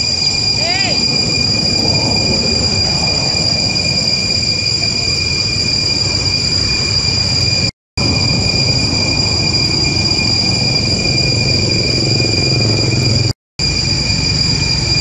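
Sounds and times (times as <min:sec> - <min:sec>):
high-pitched whine: 0:00.0 - 0:15.0
rough rumbling noise: 0:00.0 - 0:15.0.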